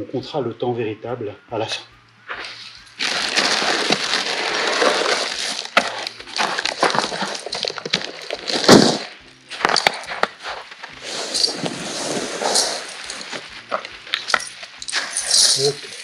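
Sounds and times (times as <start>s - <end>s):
footsteps on packed snow: 2.2s - 16.0s
rustling: 2.3s - 16.0s
snow chains clinking: 2.4s - 16.0s
loud chain clatter: 2.6s - 10.2s, 11.0s - 13.5s, 14.1s - 16.0s.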